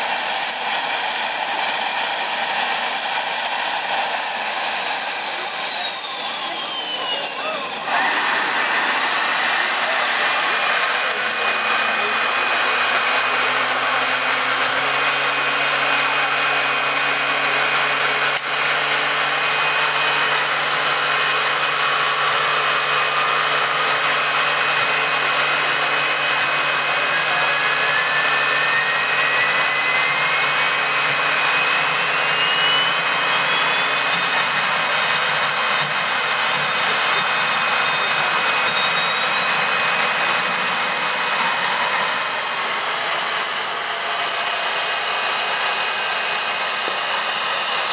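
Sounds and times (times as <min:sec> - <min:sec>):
jet engines rushing: 0:00.0 - 0:47.9
turbine whine: 0:00.0 - 0:47.9.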